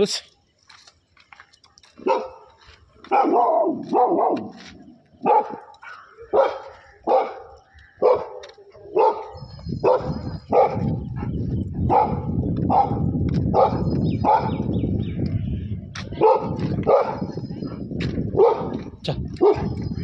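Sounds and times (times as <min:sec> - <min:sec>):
dog barking aggressively: 0:02.0 - 0:14.7, 0:16.2 - 0:17.3, 0:18.3 - 0:19.8.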